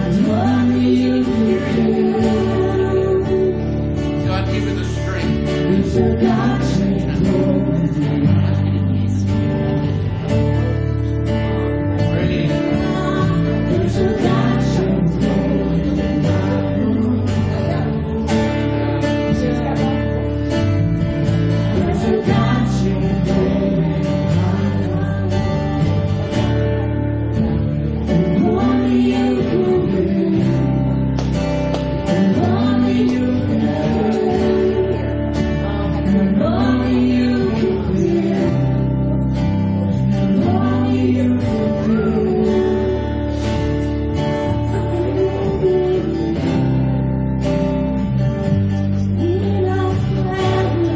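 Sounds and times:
person singing: 0:00.0 - 0:48.0, 0:48.9 - 0:50.9
gospel band playing: 0:00.0 - 0:50.9.

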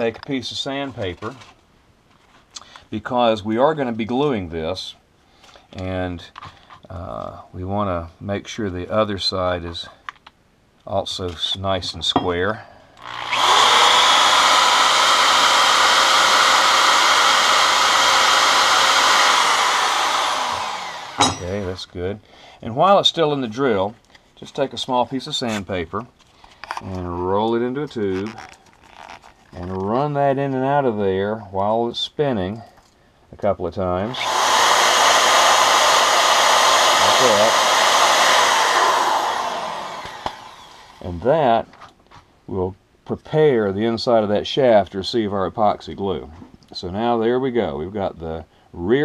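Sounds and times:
electric drill running: 0:13.0 - 0:21.7, 0:34.1 - 0:41.1.

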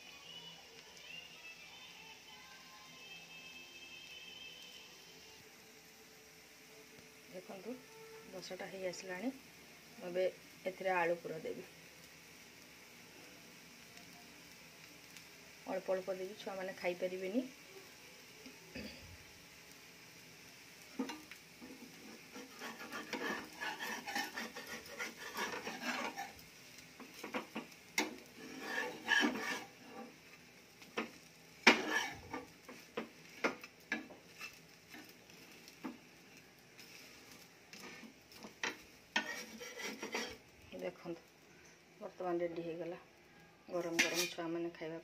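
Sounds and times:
metal spatula scraping a pan: 0:21.0 - 0:30.3, 0:30.9 - 0:36.0, 0:36.8 - 0:40.5, 0:43.8 - 0:44.5.

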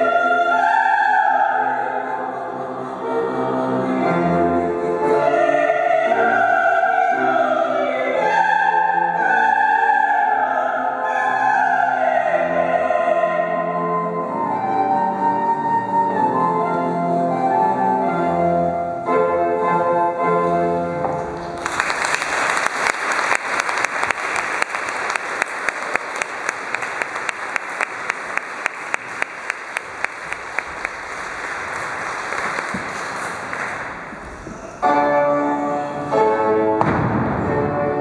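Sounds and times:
keyboard music: 0:12.4 - 0:21.6, 0:34.8 - 0:36.8
audience applauding: 0:21.4 - 0:34.4
sharp rhythmic claps: 0:21.5 - 0:34.2.

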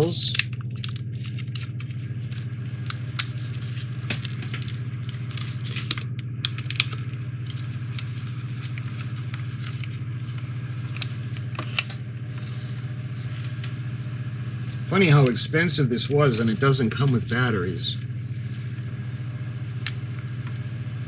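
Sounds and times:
steady low hum: 0:00.0 - 0:21.0
batteries and plastic pack rattling: 0:00.2 - 0:12.0.

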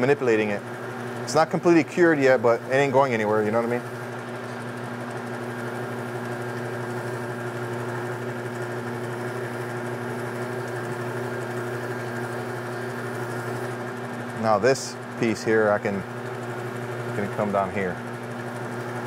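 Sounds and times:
burnishing machine motor hum: 0:00.0 - 0:19.0.

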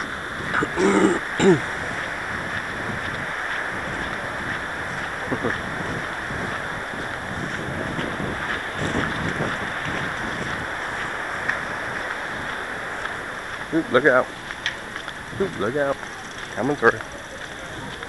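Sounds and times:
microphone handling noise: 0:00.0 - 0:12.6
faint passing voices: 0:00.0 - 0:18.0
wind on microphone: 0:00.0 - 0:18.0.

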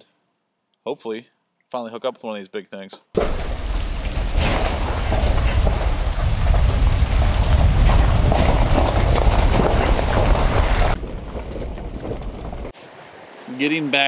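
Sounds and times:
vehicle rumbling over gravel: 0:03.2 - 0:13.9.

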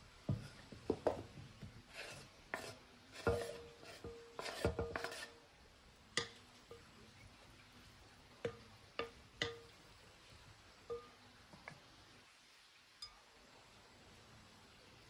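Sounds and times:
cutting board scraping glass bowl: 0:01.9 - 0:05.3.

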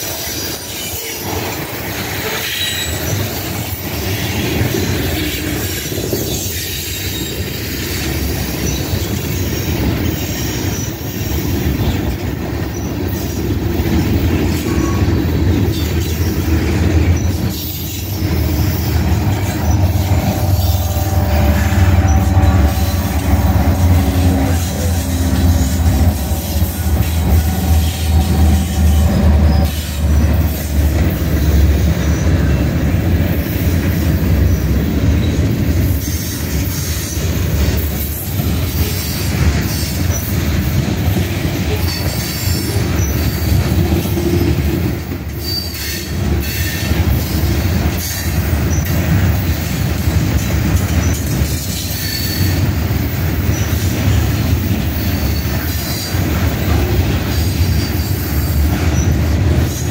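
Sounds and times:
train wheels rumbling on rails: 0:00.0 - 0:59.9
high wheel squeals: 0:02.2 - 0:32.6, 0:45.3 - 0:59.9.

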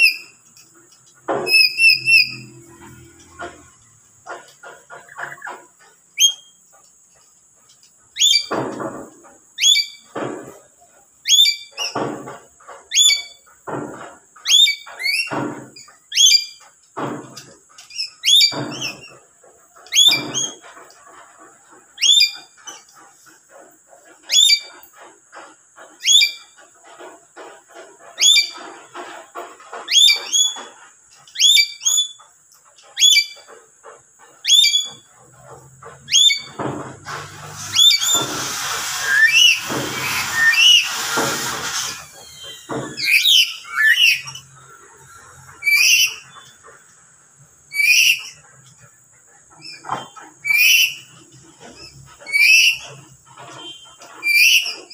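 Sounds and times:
parrot screeching calls: 0:01.5 - 0:02.6, 0:37.7 - 0:44.5, 0:45.6 - 0:46.4, 0:47.7 - 0:48.4.

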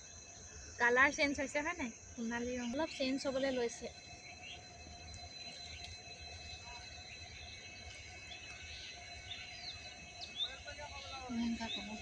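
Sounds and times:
high insect trill: 0:00.0 - 0:12.0
bird chirps: 0:02.6 - 0:12.0.

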